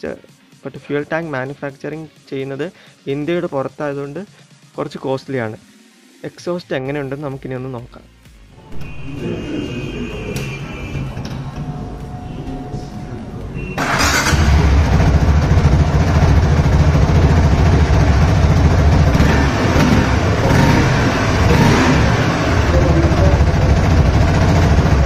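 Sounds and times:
motorcycle engine running and revving: 0:13.8 - 0:25.0.

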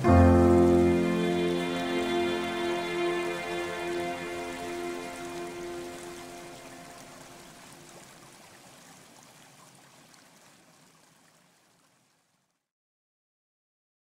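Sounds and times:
background music held notes: 0:00.0 - 0:07.8.

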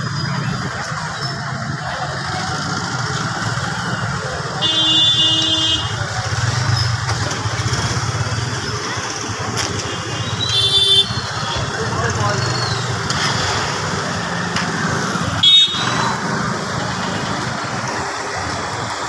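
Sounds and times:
motorcycle and scooter engines rumbling: 0:00.0 - 0:19.0
vehicle horn honking: 0:04.6 - 0:06.0, 0:10.5 - 0:11.2, 0:15.4 - 0:16.0.

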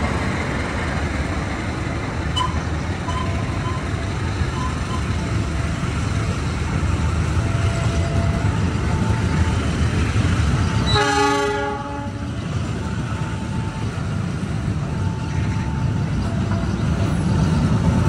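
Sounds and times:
train wheels rumbling on rails: 0:00.0 - 0:18.0
train horn: 0:10.7 - 0:12.4.

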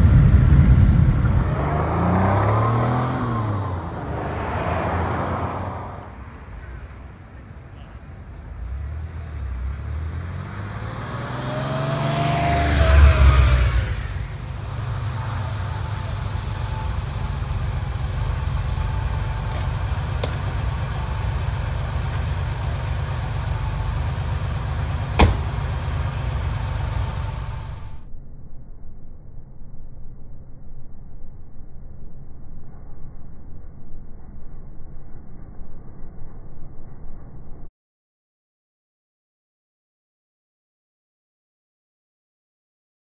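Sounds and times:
car engine driving past: 0:00.0 - 0:28.1.

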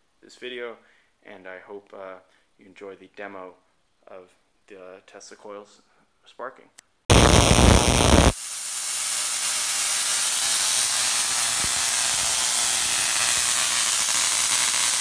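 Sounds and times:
tesla coil sparking: 0:07.1 - 0:15.0.

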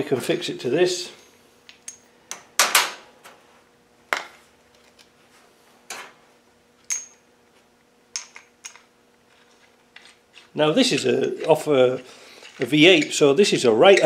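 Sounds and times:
metal parts clicking and clanking: 0:06.8 - 0:07.2, 0:08.1 - 0:14.0.

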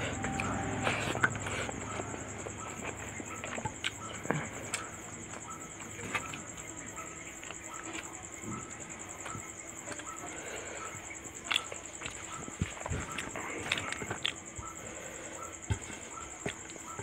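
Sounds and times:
steady high-pitched trill: 0:00.0 - 0:02.8
wet chewing smacks and clicks: 0:00.4 - 0:08.3, 0:09.2 - 0:17.0.

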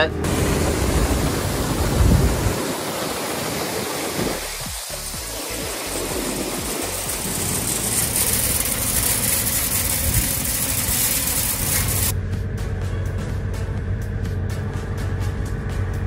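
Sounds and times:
engine humming: 0:00.0 - 0:16.0
grain pouring through hopper: 0:00.3 - 0:12.1.

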